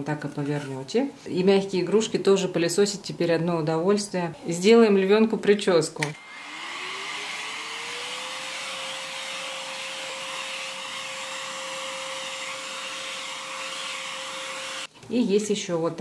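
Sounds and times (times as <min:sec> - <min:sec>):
vacuum motor whining: 0:06.2 - 0:14.9.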